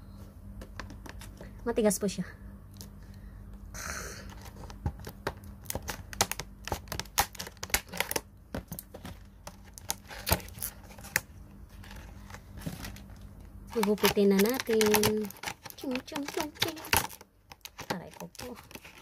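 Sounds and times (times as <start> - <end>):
hard plastic crackling: 4.2 - 19.0.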